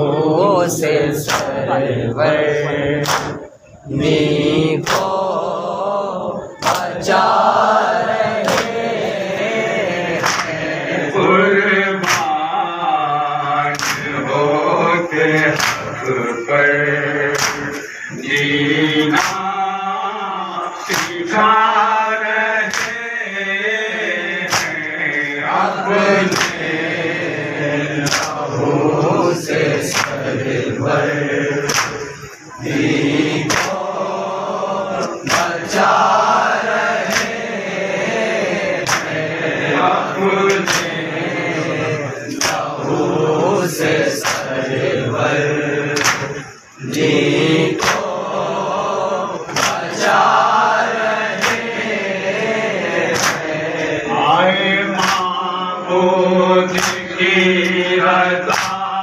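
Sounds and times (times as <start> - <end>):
men chanting in chorus: 0.0 - 59.0
chest-beating slaps: 3.0 - 3.4, 4.8 - 5.2, 6.6 - 6.9, 8.4 - 8.9, 10.2 - 10.6, 12.0 - 12.3, 17.4 - 19.5, 22.7 - 23.0, 24.5 - 24.9, 26.3 - 26.7, 28.0 - 28.4, 31.7 - 33.8, 35.0 - 35.6, 37.0 - 37.4, 38.8 - 39.2, 40.5 - 41.0, 42.3 - 42.7, 46.0 - 47.1, 47.8 - 48.2, 49.5 - 50.2, 51.4 - 51.8, 53.0 - 53.6, 55.0 - 55.3, 56.7 - 57.0, 58.5 - 58.9.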